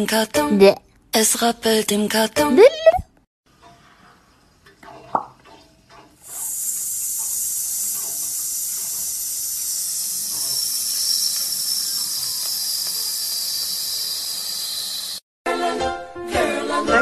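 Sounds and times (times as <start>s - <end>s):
high-pitched hiss: 6.3s - 15.2s.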